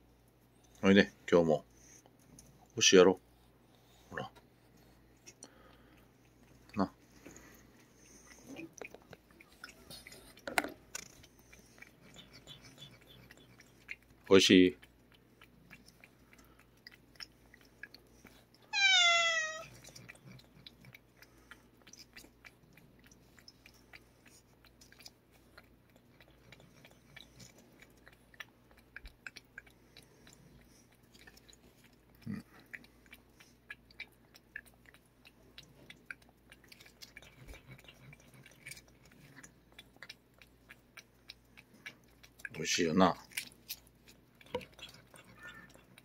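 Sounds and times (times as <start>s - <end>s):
cat licking: 0.0s - 46.0s
cat meowing: 18.7s - 19.7s.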